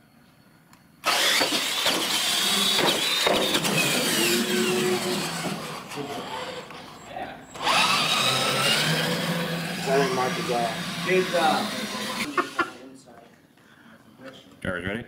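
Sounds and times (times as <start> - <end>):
toy truck motors whining: 1.0 - 12.8
knocks: 2.7 - 3.8.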